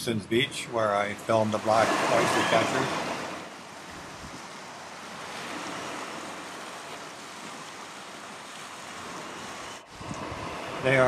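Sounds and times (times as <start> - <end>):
sea waves washing: 0.0 - 11.0.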